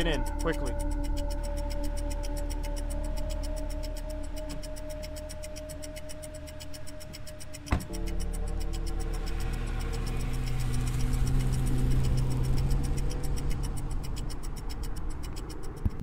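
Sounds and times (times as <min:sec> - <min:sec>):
rapid clock-like ticking: 0:00.0 - 0:16.0
sustained low drone: 0:00.0 - 0:16.0.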